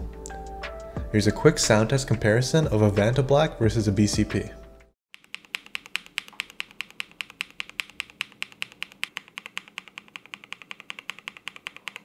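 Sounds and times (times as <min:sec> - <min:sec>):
mechanical keyboard typing: 0:05.2 - 0:12.0.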